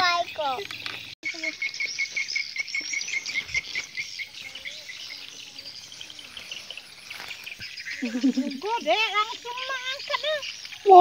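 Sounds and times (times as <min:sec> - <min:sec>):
insects chirping: 0:00.0 - 0:11.0
small birds twittering: 0:00.0 - 0:11.0.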